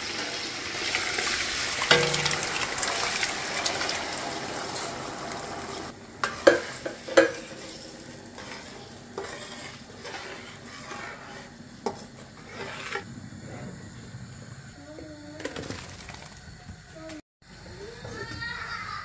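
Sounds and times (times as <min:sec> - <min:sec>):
frying sizzle: 0:00.0 - 0:13.0.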